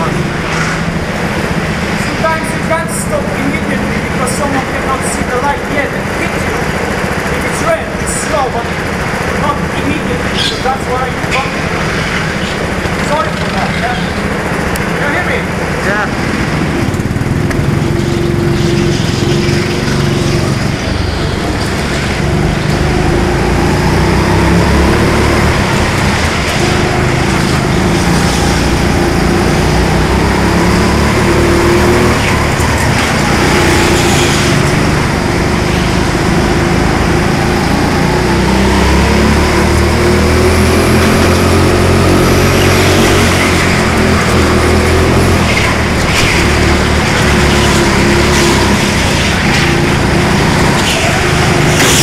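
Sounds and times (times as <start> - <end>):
go-kart engine running hard: 0.0 - 52.0.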